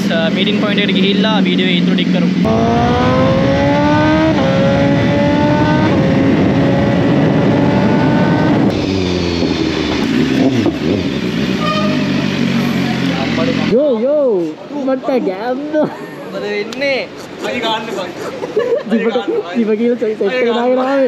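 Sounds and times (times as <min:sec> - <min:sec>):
motorcycle engine accelerating: 0:00.0 - 0:13.9
wind rushing over microphone: 0:02.4 - 0:09.6.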